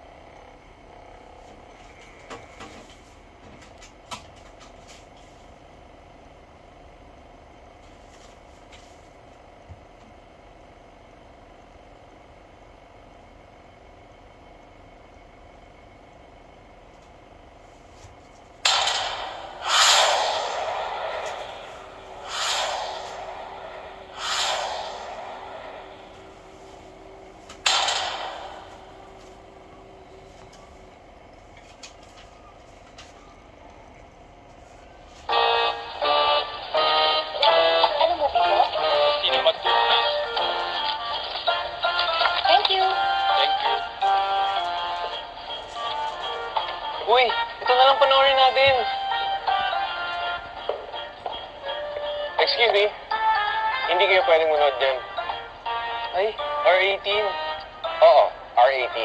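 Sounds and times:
disc drive whirring: 0:00.0 - 0:04.5, 0:18.2 - 0:47.2
sudden hit: 0:18.7 - 0:26.8, 0:27.6 - 0:29.7
rushing whooshes: 0:19.5 - 0:26.9.

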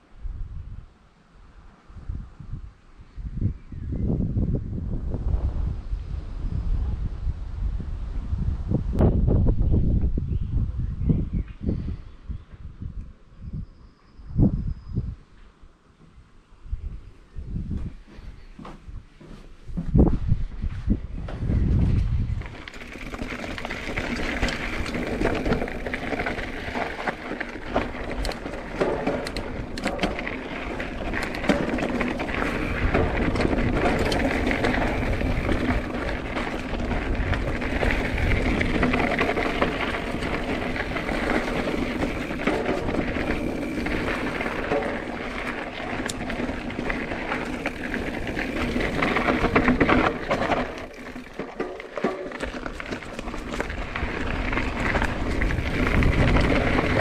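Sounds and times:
mountain bike on dirt trail: 0:00.0 - 0:57.0
bike knocks and rattles: 0:21.2 - 0:57.0.

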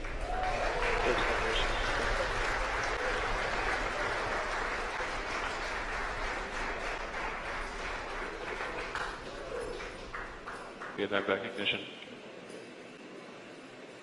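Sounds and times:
crowd applauding and cheering: 0:00.0 - 0:11.1.

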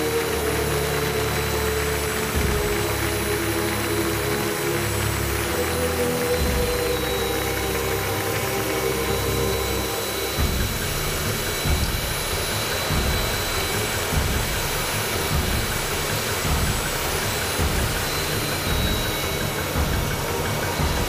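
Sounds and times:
jet turbine running: 0:00.0 - 0:21.0.

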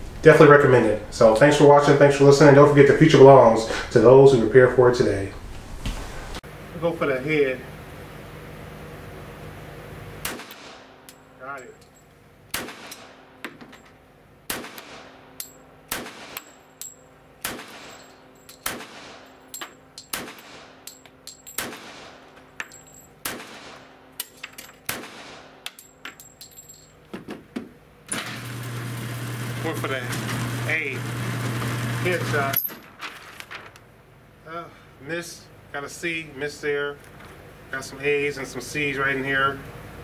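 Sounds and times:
pistol shots with echo: 0:10.2 - 0:11.0, 0:12.5 - 0:13.4, 0:14.5 - 0:16.6, 0:17.4 - 0:19.4, 0:20.0 - 0:20.9, 0:21.6 - 0:22.3, 0:23.2 - 0:24.0, 0:24.9 - 0:25.6
motor hum: 0:28.0 - 0:33.7.

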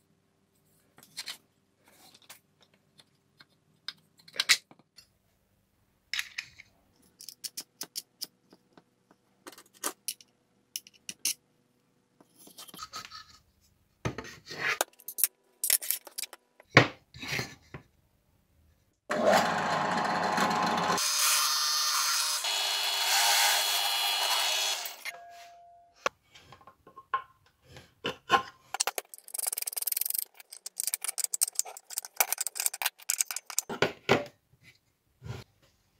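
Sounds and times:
drill press running: 0:19.1 - 0:21.0
small metal parts clicking: 0:28.8 - 0:33.7.

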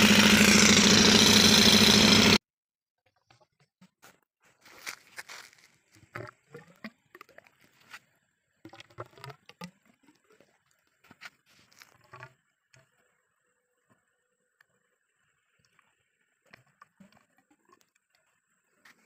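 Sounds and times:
thick liquid pouring: 0:05.9 - 0:07.8.

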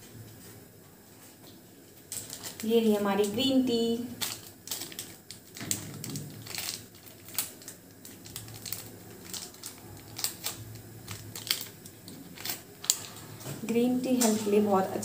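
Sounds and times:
paper wrapper crinkling: 0:02.0 - 0:13.4.

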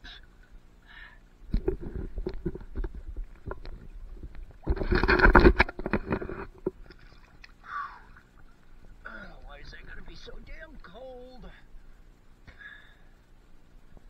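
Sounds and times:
water splashing and sloshing: 0:01.5 - 0:10.9.

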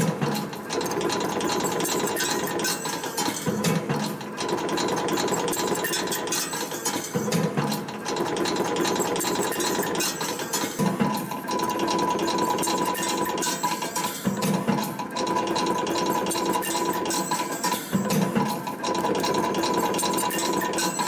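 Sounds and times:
machine clicking and clatter: 0:00.0 - 0:21.0.

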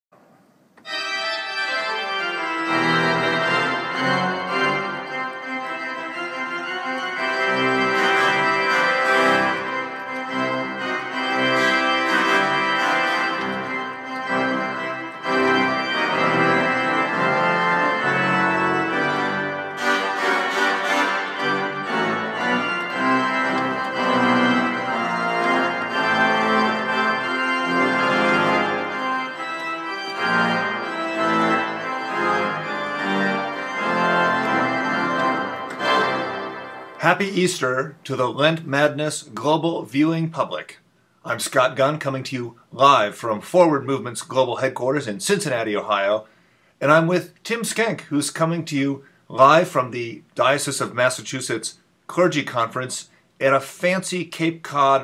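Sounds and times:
instrumental music with keyboard chords: 0:00.7 - 0:37.3.

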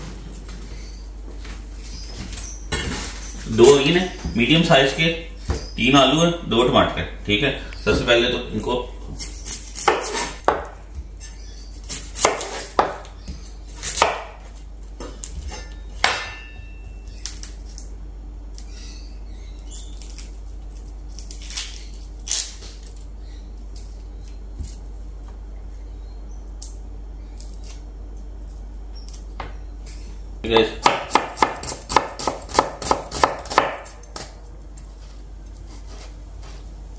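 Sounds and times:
knife chopping on cutting board: 0:11.9 - 0:13.1, 0:30.5 - 0:34.3.

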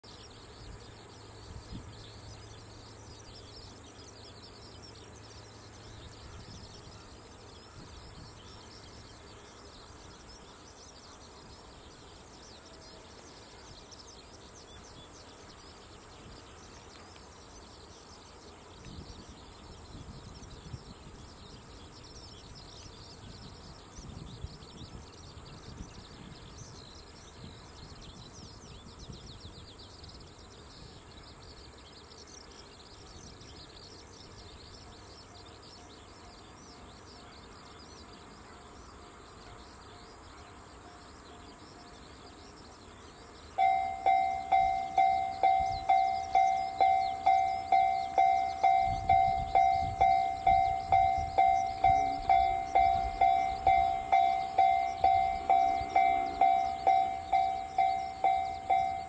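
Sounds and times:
high-pitched hiss: 0:00.1 - 0:59.0
insects chirping and trilling: 0:00.1 - 0:59.0.

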